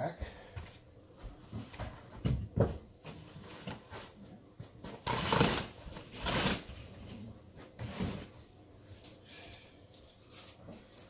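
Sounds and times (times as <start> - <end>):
soft rustling and shuffling: 0.2 - 5.0.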